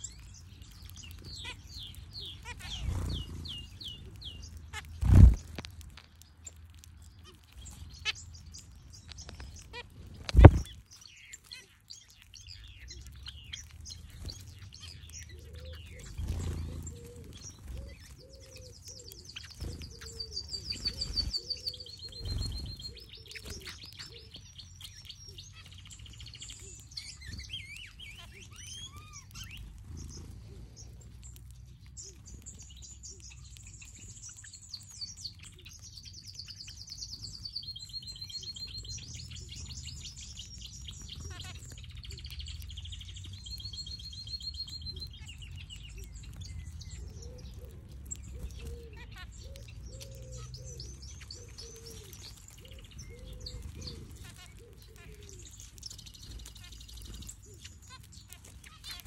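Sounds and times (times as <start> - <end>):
finches chirping: 0.0 - 59.0
dove cooing: 15.3 - 24.3, 46.9 - 55.6.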